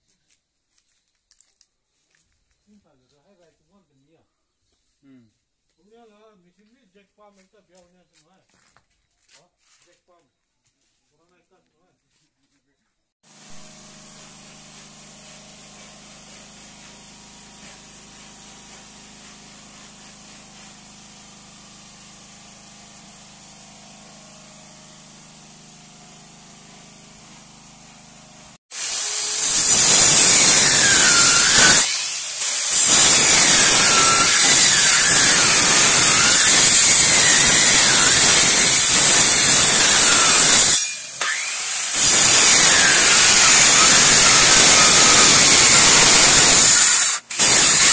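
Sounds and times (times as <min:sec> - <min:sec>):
circular saw cutting wood: 0:13.2 - 0:47.9.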